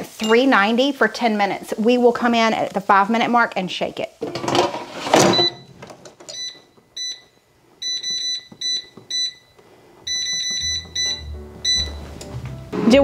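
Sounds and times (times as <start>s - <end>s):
control panel beeps: 6.3s - 9.5s, 10.1s - 12.1s.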